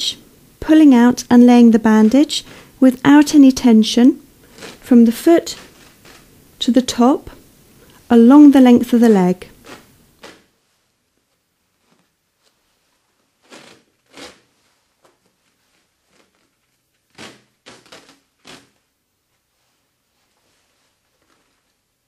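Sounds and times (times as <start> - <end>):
bandage peeling off roll: 4.3 - 6.6, 9.4 - 10.6, 11.2 - 22.0.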